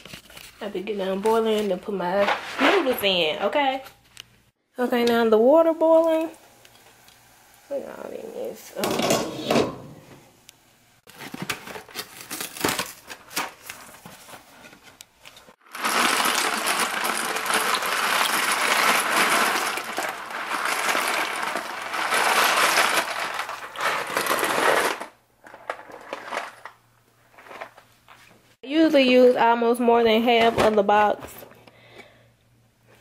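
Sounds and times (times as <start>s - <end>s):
dry pasta pouring into pot: 15.6s - 25.1s.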